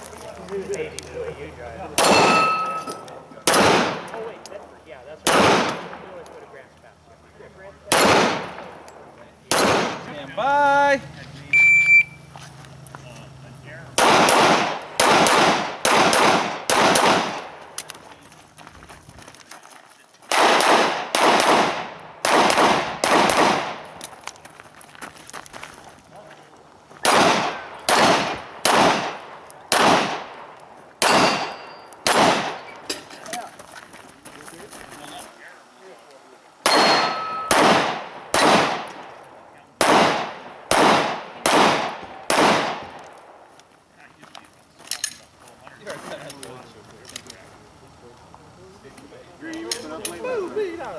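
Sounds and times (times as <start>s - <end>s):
pistol shots with echo: 2.0s - 4.4s, 5.2s - 6.2s, 7.9s - 10.1s, 14.0s - 17.7s, 20.3s - 24.0s, 27.0s - 32.7s, 36.6s - 39.2s, 39.8s - 43.4s.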